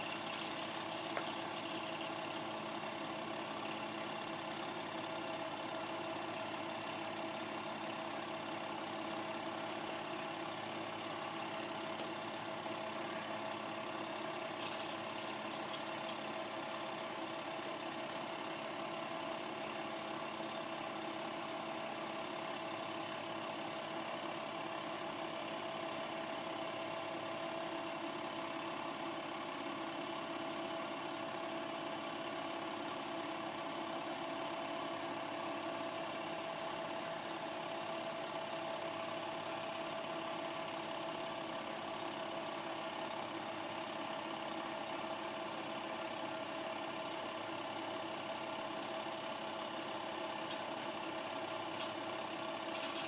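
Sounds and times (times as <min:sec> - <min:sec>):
projector mechanical clatter: 0:00.0 - 0:02.4, 0:13.8 - 0:16.9, 0:49.8 - 0:53.0
projector motor hum: 0:00.0 - 0:08.8, 0:10.5 - 0:21.7, 0:47.6 - 0:53.0.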